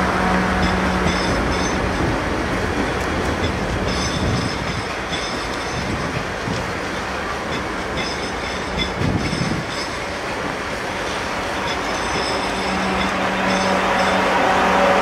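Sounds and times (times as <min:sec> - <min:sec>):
train wheels clattering over rails: 0:00.0 - 0:15.0
faint high wheel squeal: 0:11.5 - 0:15.0.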